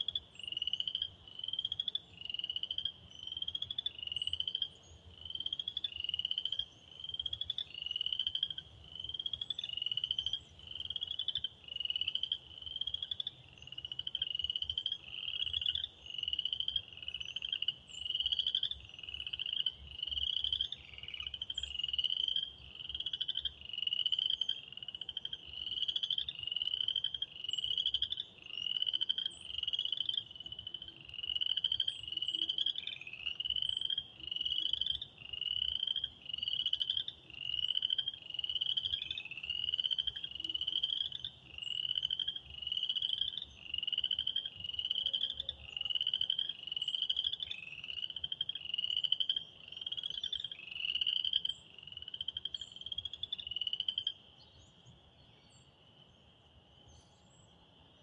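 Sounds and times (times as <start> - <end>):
frog chorus: 0.0 - 58.0.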